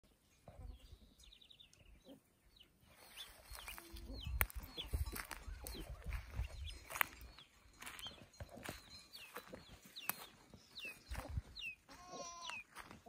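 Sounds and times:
birds chirping: 0.0 - 13.0
footsteps on dirt: 2.9 - 13.0.

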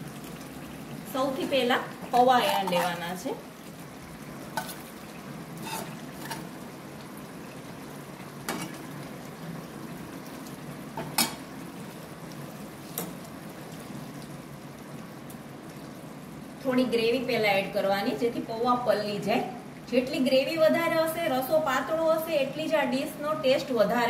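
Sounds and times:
metal spoon scraping on metal: 2.6 - 3.0, 5.6 - 6.4.

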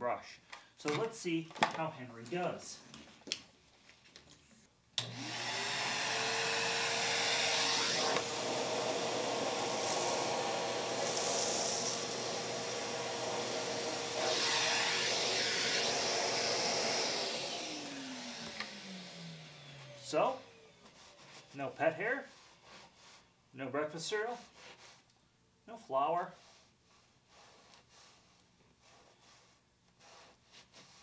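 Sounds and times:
vacuum cleaner motor whine: 5.0 - 21.3
rush of air over carpet: 26.4 - 31.0.

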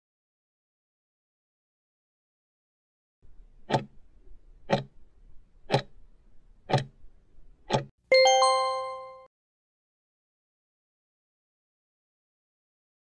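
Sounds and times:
clock ticking: 3.6 - 3.9, 4.6 - 5.0, 5.7 - 6.0, 6.7 - 7.0, 7.7 - 7.9
bell-like chime: 8.1 - 9.3.

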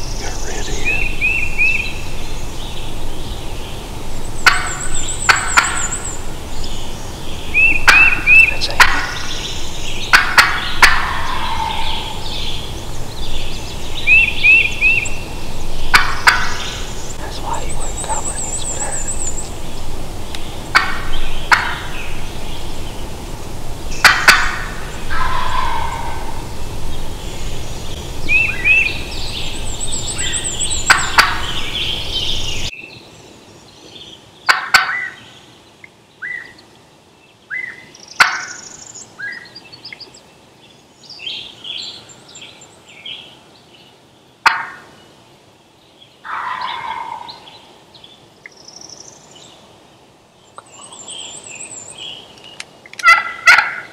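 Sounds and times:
songbird trills: 0.0 - 23.2, 23.8 - 45.2, 50.4 - 53.9
turkey gobbling: 4.4 - 6.0, 7.6 - 9.3, 10.1 - 12.2, 15.9 - 16.7, 20.7 - 22.0, 24.0 - 26.4, 30.9 - 31.5, 34.5 - 35.2, 38.2 - 38.5, 44.4 - 44.8, 46.2 - 47.4, 53.0 - 53.9.

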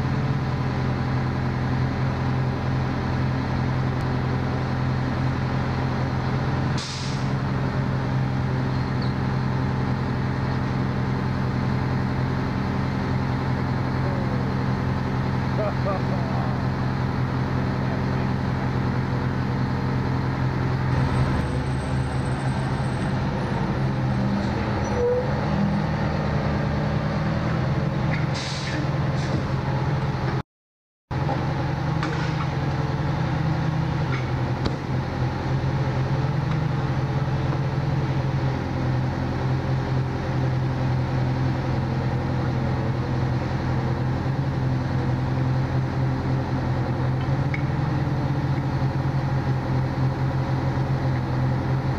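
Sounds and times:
fire engine idling: 0.0 - 23.6.

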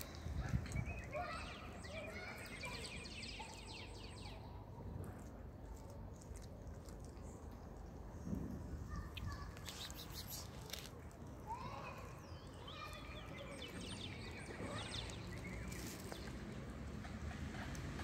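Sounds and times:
small birds twittering: 0.0 - 4.6, 7.1 - 10.9, 11.5 - 16.7
low outdoor background noise: 0.0 - 18.0.

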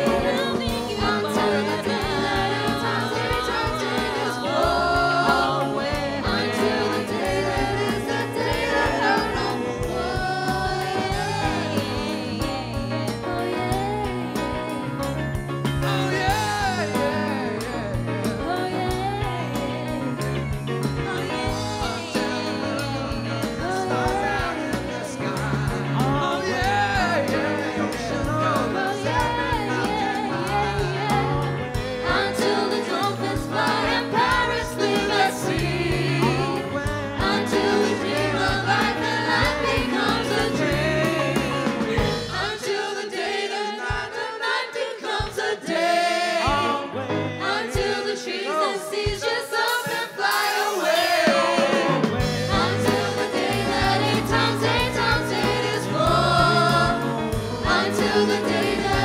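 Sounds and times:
live band playing: 0.0 - 59.0
voices singing together: 0.0 - 59.0.

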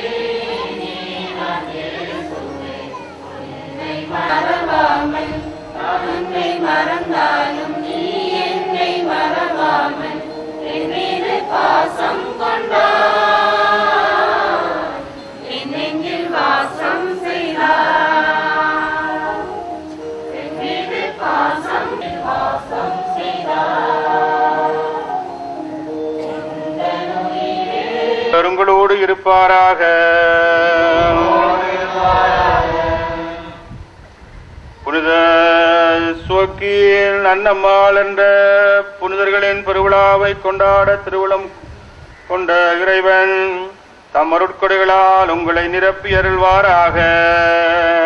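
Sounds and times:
choir singing a hymn: 0.0 - 34.1.

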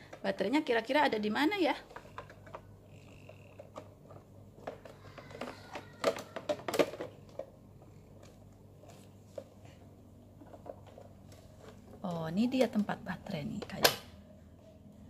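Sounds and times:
plastic toy clicks and knocks: 1.8 - 7.6.

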